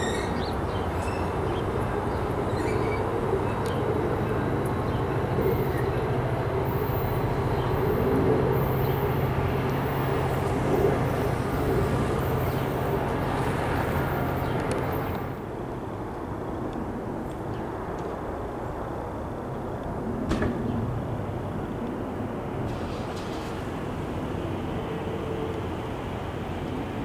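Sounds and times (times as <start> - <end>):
train cars rumbling: 0.0 - 15.5, 20.4 - 27.0
diesel locomotive drone: 0.0 - 27.0
outdoor background noise: 0.0 - 27.0.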